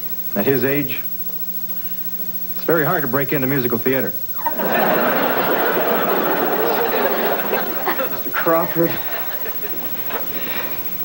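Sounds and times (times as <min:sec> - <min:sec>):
studio audience laughing: 0:04.4 - 0:11.0.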